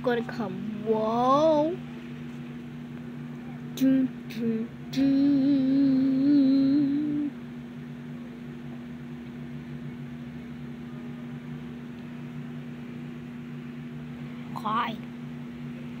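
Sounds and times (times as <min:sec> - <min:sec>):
low hum with two tones: 0:00.0 - 0:16.0
person humming a tune: 0:03.8 - 0:07.4.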